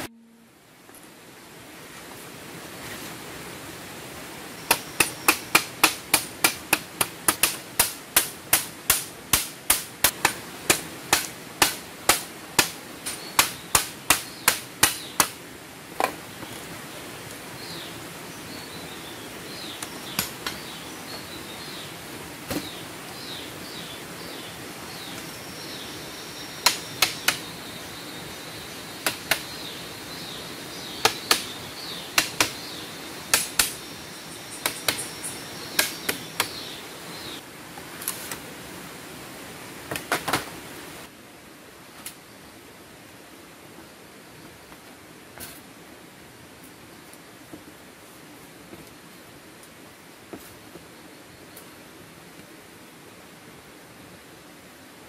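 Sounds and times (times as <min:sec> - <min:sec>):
hammering bamboo slats: 0:04.7 - 0:15.4, 0:26.6 - 0:27.4, 0:29.0 - 0:29.5, 0:31.0 - 0:33.8, 0:34.6 - 0:35.1, 0:35.7 - 0:36.6.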